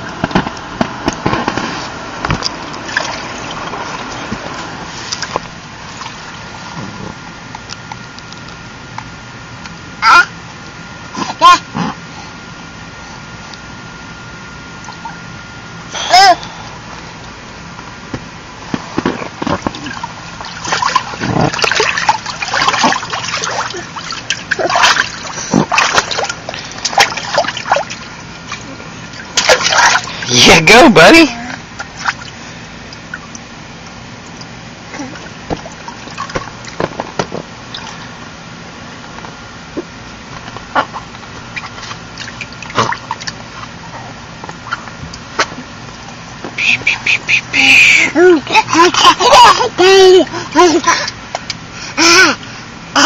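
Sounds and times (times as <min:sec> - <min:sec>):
water splashing in paddling pool: 0:01.4 - 0:06.8, 0:19.5 - 0:33.5, 0:40.8 - 0:43.9
baby splashing in water: 0:19.6 - 0:28.6, 0:29.2 - 0:30.3.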